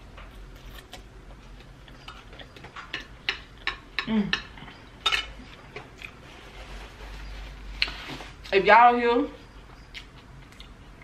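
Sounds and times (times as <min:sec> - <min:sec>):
close chewing: 0:05.7 - 0:06.2, 0:09.7 - 0:11.0.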